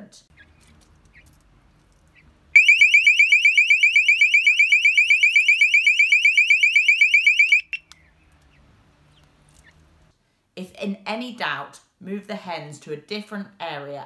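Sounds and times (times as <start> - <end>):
alarm shrill chirping: 2.6 - 7.8.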